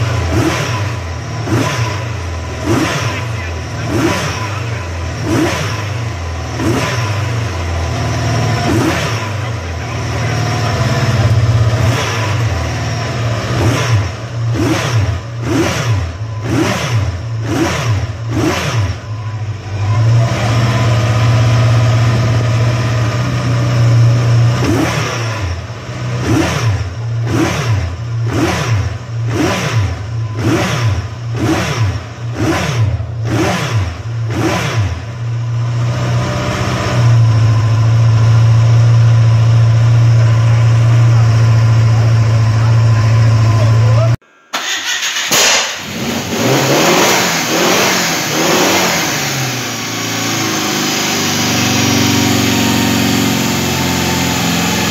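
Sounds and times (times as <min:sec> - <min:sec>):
motorcycle engine idling and revving: 0:00.0 - 0:54.9.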